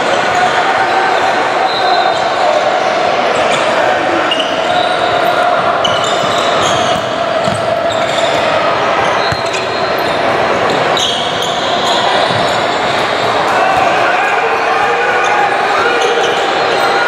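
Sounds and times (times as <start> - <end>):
sneakers squeaking: 3.4 - 14.1
basketball bouncing on court: 6.6 - 8.5, 9.2 - 9.7, 12.2 - 13.0.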